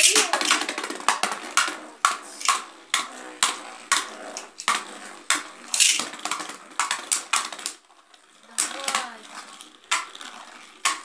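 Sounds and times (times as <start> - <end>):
spinning tops clacking: 0.0 - 11.0.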